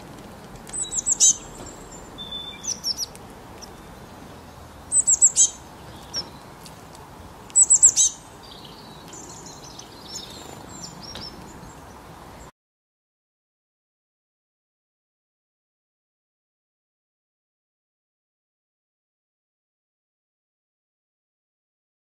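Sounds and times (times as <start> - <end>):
songbird chirping: 0.6 - 12.5.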